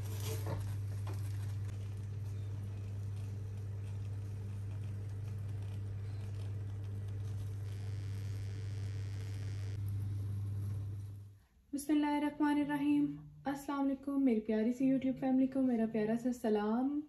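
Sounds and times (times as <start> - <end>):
charring skin crackling: 0.0 - 11.2
gas burner flame hissing: 0.0 - 11.4.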